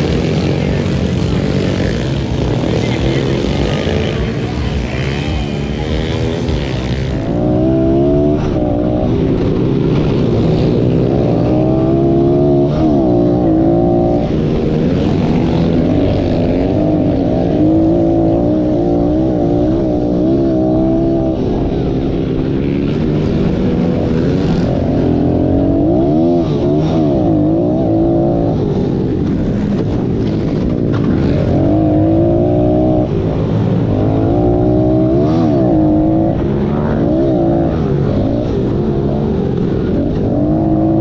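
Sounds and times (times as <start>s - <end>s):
distant motorbikes: 0.0s - 41.0s
motorbike engine revving: 0.0s - 41.0s.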